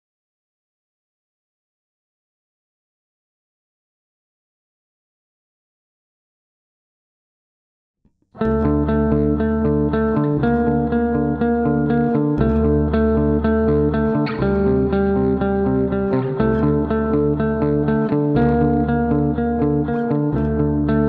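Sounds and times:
bass line: 8.4 - 21.0
plucked guitar notes: 8.4 - 21.0.

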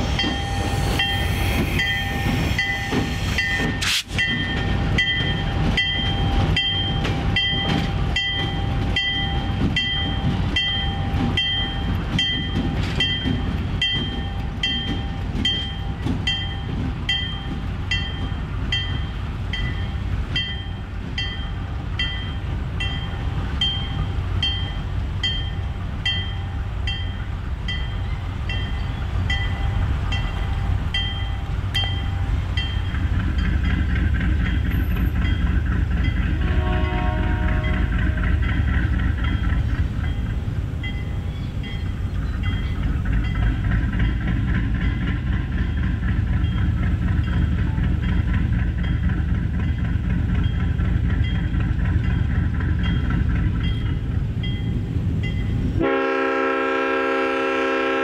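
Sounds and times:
crossing warning bell ringing: 0.0 - 57.9
train rumbling past: 0.0 - 58.0.

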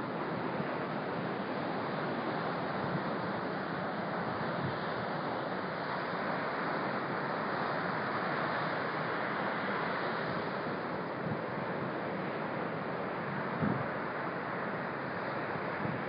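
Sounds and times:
ocean surf breaking: 0.0 - 16.0
wind buffeting microphone: 13.6 - 13.9.

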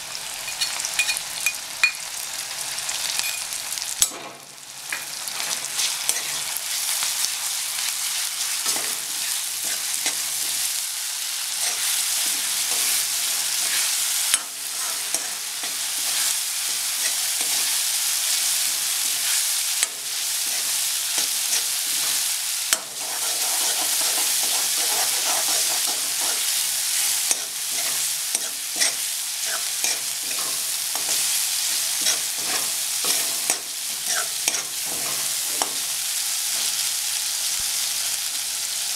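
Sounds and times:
spice paste sizzling in oil: 0.0 - 38.9
metal spoon scraping a pan: 5.4 - 7.0, 8.0 - 10.8, 11.5 - 17.8, 18.9 - 35.8.

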